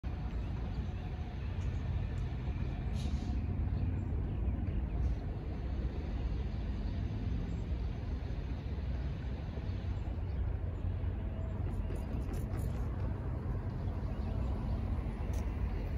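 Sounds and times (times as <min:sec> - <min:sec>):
low rumble of vehicle noise: 0:00.0 - 0:15.9.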